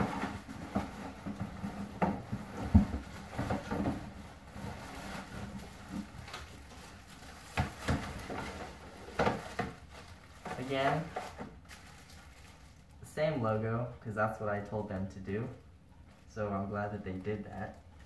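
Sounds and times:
plastic bags and cardboard rustling: 0.0s - 13.1s.

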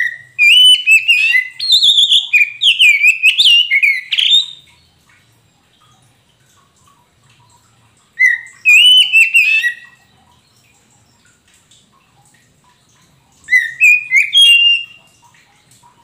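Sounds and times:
bird singing whistled notes: 0.0s - 4.7s, 8.2s - 10.0s, 13.5s - 15.1s.

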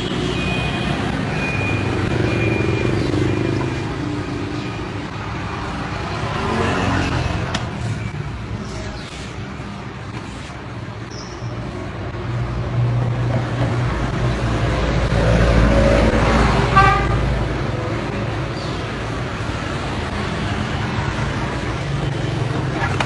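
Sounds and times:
vehicle rumbling past: 12.0s - 22.7s
car horn toot: 16.7s - 17.2s.

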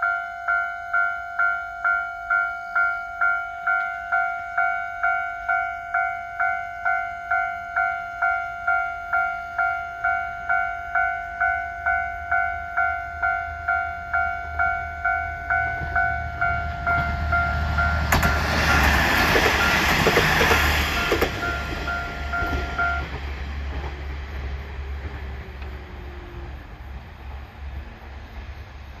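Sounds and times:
level crossing bell ringing: 0.0s - 18.9s, 20.9s - 23.0s
train wheels passing: 0.0s - 29.0s
sharp clacks of train wheels: 15.5s - 25.9s.

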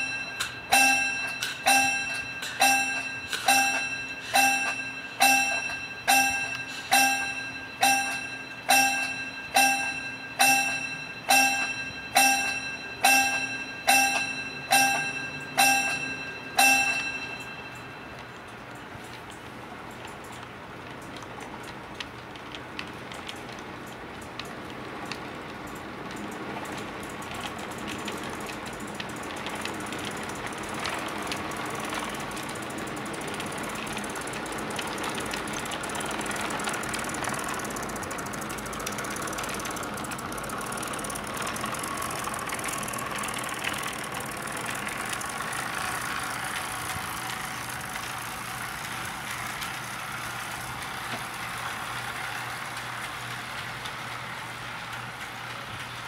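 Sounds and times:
wheels clicking over rail joints: 0.0s - 56.0s
model train motor hum: 26.2s - 56.0s.

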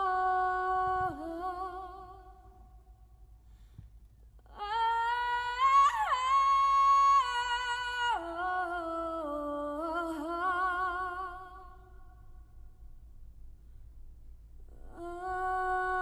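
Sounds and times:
woman singing through car speakers: 0.0s - 2.5s, 4.5s - 11.8s, 14.7s - 16.0s.

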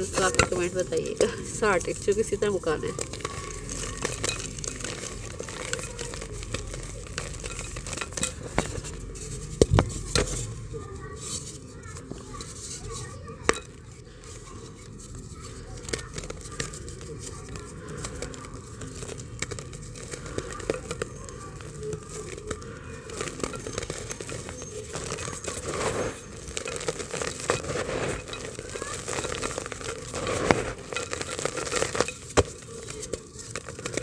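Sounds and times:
dry earth crumbling by hand: 0.0s - 10.4s, 15.2s - 34.0s
crackling and small clicks: 15.5s - 34.0s.

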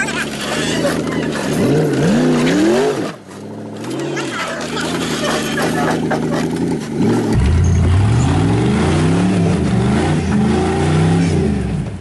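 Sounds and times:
wheels spinning on rock: 0.0s - 7.3s
truck engine revving: 0.0s - 12.0s.

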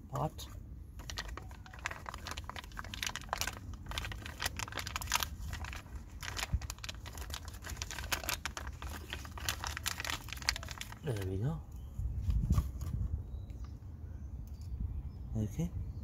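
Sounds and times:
plastic bag crinkling: 0.9s - 11.4s.

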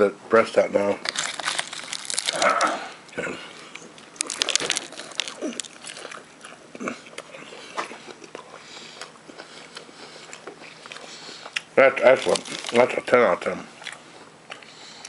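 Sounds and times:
crunchy fried chicken chewing: 1.0s - 15.0s.

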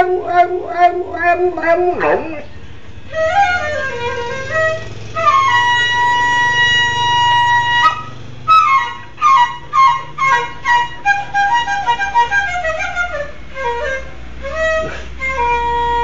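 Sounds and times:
dog howling: 0.0s - 2.6s
flute playing: 0.0s - 16.0s.

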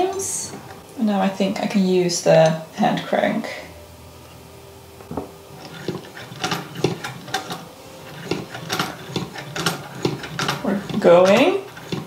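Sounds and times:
hand-crank sewing machine clicking: 5.6s - 12.0s.

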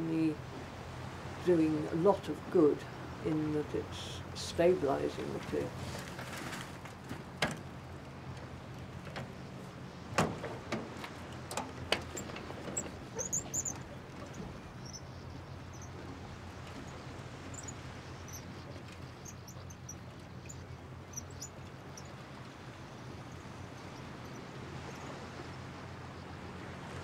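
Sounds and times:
faint bird chirps: 12.2s - 25.5s.

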